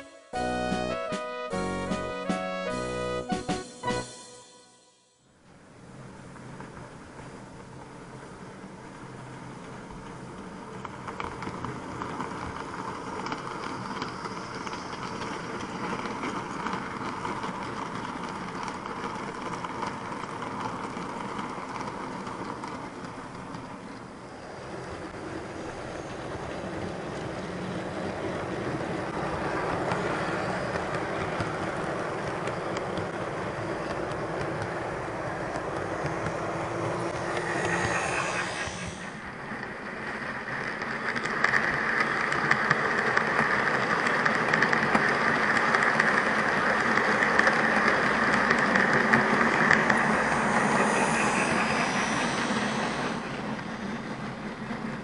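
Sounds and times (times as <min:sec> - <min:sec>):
model train wheels rolling on rails: 0:05.7 - 0:55.0
electric motor hum: 0:35.4 - 0:39.5, 0:48.6 - 0:54.0.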